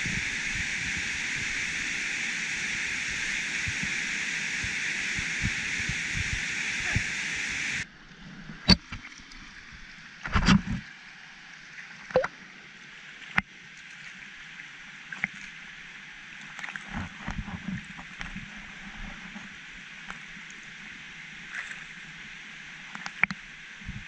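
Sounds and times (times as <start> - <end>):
waterfall rushing: 0.0 - 7.8.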